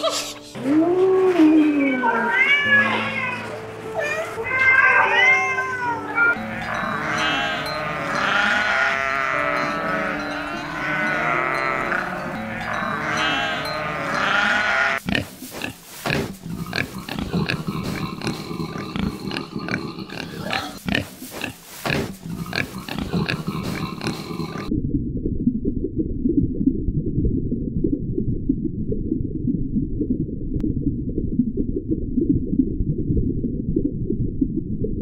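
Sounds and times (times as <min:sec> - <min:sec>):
sheep bleating: 0:05.9 - 0:15.1
pigs grunting: 0:06.3 - 0:24.7.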